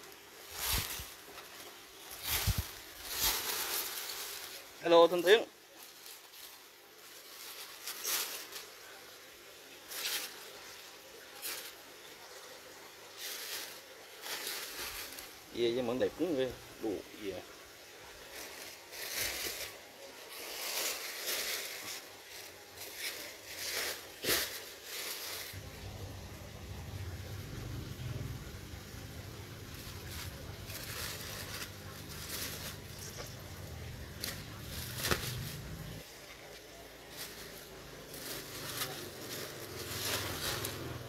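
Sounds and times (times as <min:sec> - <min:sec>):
plastic bag rustling: 0:00.0 - 0:41.0
low rumble: 0:25.6 - 0:31.5.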